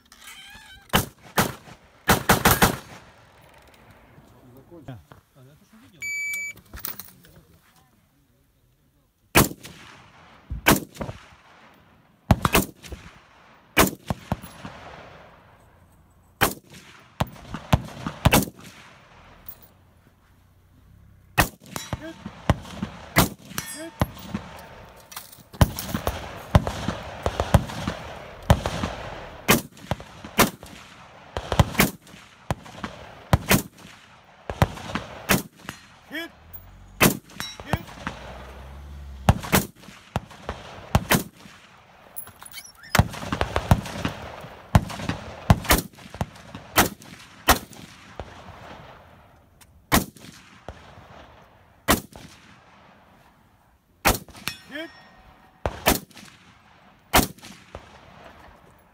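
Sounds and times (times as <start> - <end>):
rifle gunshots: 0.9 - 3.3, 9.3 - 15.5, 16.4 - 19.5, 20.9 - 42.2, 43.0 - 49.3, 49.9 - 53.1, 54.0 - 54.6, 55.4 - 58.6.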